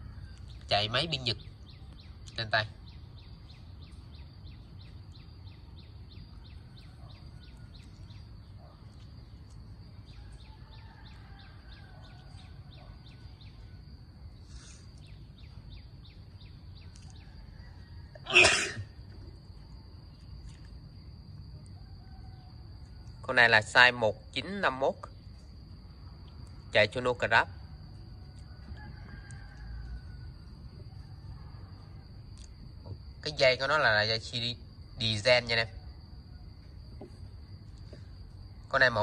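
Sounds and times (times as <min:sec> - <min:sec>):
person sneezing: 0:18.2 - 0:18.9.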